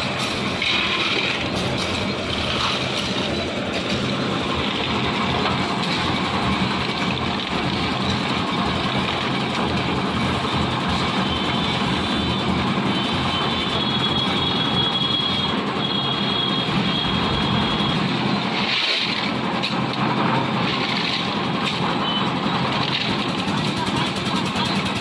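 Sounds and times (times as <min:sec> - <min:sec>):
concrete mixer running: 0:00.0 - 0:25.0.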